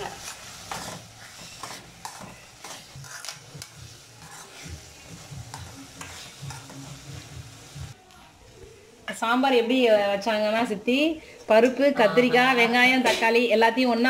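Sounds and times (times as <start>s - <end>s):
spoon scraping metal pan: 0.0s - 7.0s.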